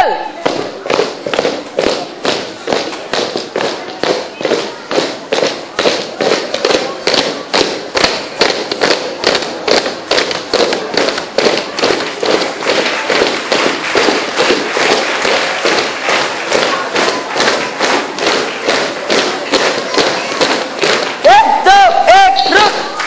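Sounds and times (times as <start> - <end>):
loud dance music: 0.0 - 23.0.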